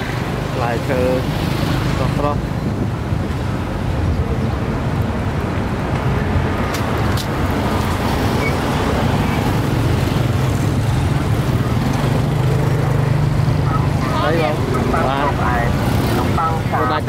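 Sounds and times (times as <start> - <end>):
motorbike engines humming: 0.0 - 17.0
street traffic: 0.0 - 17.0
people's voices: 12.6 - 17.0.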